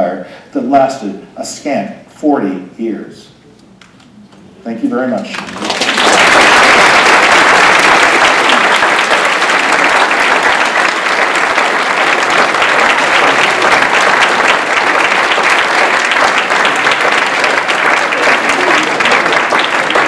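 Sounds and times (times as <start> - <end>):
large audience applauding: 5.2 - 20.0.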